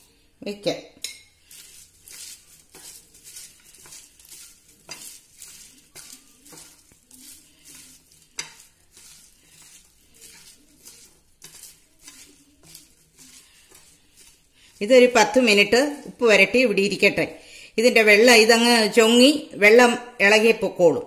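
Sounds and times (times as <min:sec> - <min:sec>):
vegetable pieces clicking on a plate: 0:01.6 - 0:14.4.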